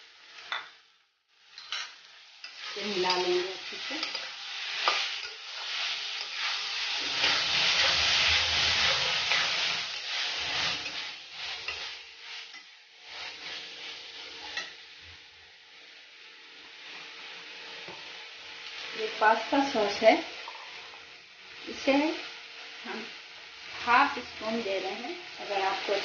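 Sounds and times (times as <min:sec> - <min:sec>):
food sizzling: 0:00.0 - 0:26.0
spatula scraping a metal pan: 0:01.6 - 0:13.6.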